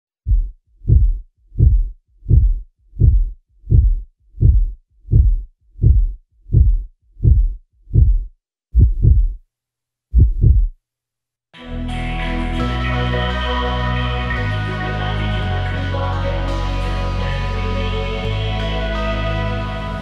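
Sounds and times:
heartbeat thuds: 0:00.2 - 0:09.4, 0:10.1 - 0:10.8.

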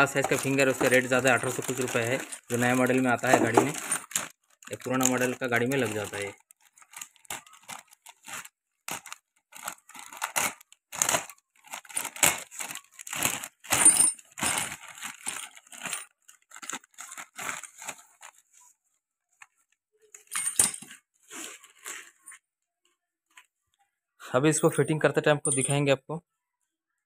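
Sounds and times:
metal parts clattering: 0:00.0 - 0:06.0, 0:11.9 - 0:16.1, 0:20.2 - 0:21.0
plastic packet crinkling: 0:00.0 - 0:18.6, 0:21.2 - 0:22.4
metal parts clinking: 0:13.2 - 0:16.1, 0:20.2 - 0:21.0.

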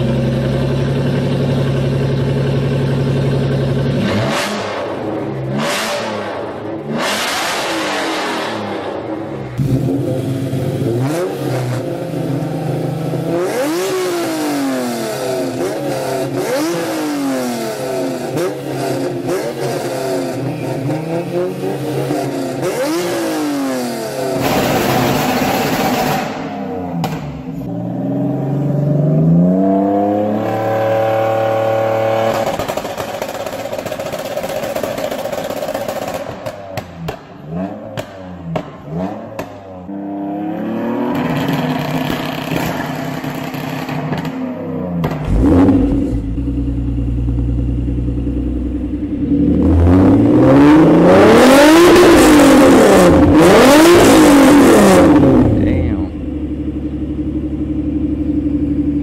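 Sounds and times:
sports car engine revving: 0:00.0 - 0:59.0.

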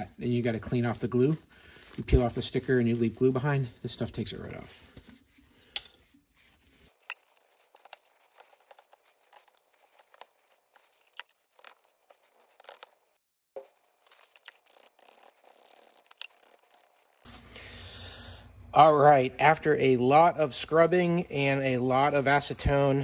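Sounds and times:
paper towel scrubbing plastic: 0:00.0 - 0:17.9.

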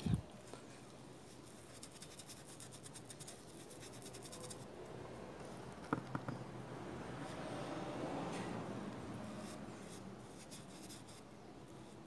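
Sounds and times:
paintbrush scrubbing on rubber: 0:01.2 - 0:04.7, 0:09.2 - 0:12.0.

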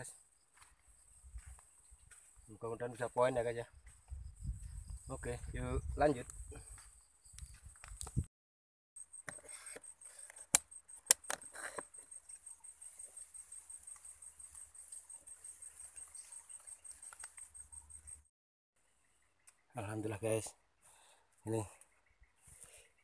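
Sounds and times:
high-pitched insect trill: 0:00.0 - 0:08.3, 0:09.0 - 0:18.3.

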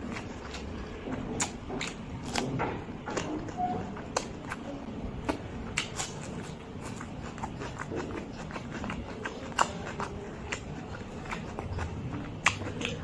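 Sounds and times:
person chewing: 0:00.0 - 0:13.0
wet mouth clicks and smacks: 0:05.2 - 0:13.0.

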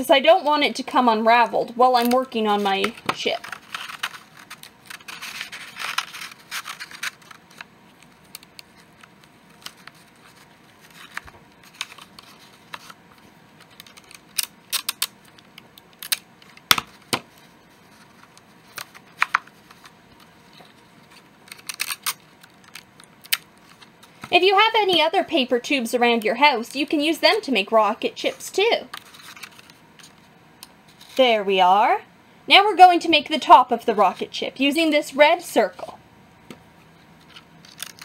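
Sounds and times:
paper rustling: 0:01.9 - 0:15.5, 0:16.4 - 0:24.4, 0:28.9 - 0:30.3
sticky tape pulled and torn: 0:13.6 - 0:17.0, 0:21.1 - 0:23.9, 0:37.2 - 0:38.0.

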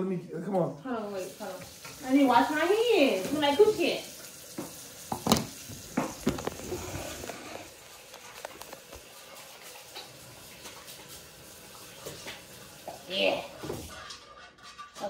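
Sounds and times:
knocks on kitchen counter: 0:04.6 - 0:06.4.

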